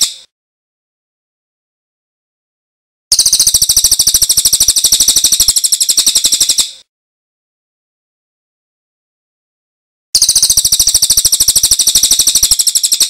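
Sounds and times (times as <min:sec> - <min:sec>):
bird trilling: 0:00.0 - 0:00.3, 0:03.1 - 0:06.8, 0:10.2 - 0:13.0.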